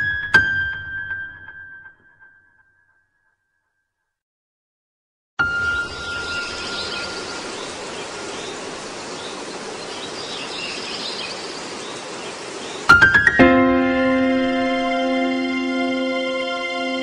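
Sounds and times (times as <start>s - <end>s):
steady background hiss: 5.8s - 13.2s.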